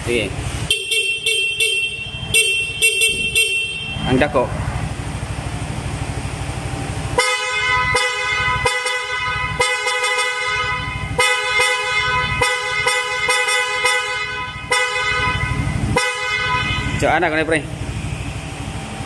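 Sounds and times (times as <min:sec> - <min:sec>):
electric horn toots: 0:00.7 - 0:04.2, 0:07.2 - 0:17.2.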